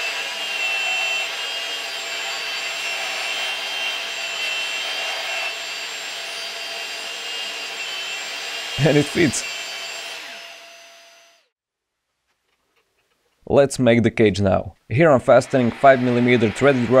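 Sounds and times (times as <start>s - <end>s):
belt sander grinding metal: 0.0s - 11.5s, 15.3s - 17.0s.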